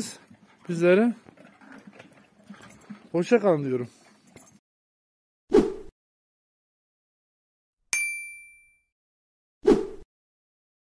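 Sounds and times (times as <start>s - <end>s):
bright metallic ding: 8.0s - 8.9s.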